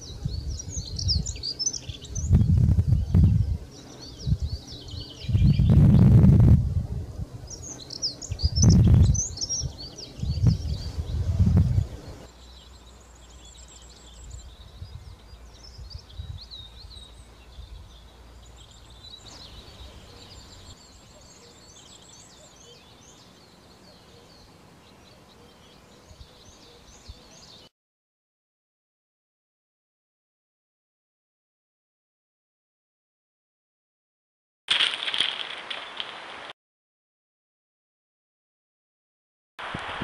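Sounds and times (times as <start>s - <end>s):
songbirds warbling: 0.0s - 27.7s.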